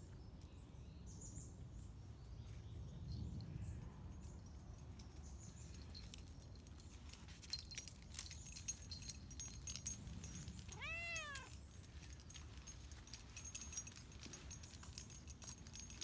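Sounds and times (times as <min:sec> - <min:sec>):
light clicks and jingles: 0:00.0 - 0:16.0
cat meowing: 0:10.7 - 0:11.6.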